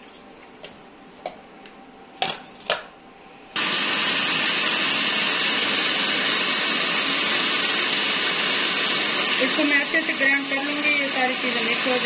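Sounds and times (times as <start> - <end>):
electric grinder running: 3.6 - 12.0.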